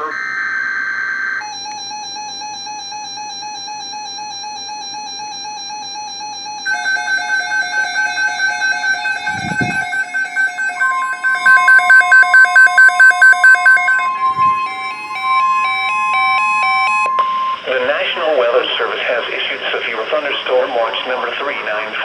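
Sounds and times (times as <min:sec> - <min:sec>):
loud rapid beeping: 0:06.6 - 0:17.6
steady alert tone: 0:06.7 - 0:16.3
warbling electronic alert tone: 0:06.7 - 0:17.1
pulsing beeps: 0:06.7 - 0:17.6.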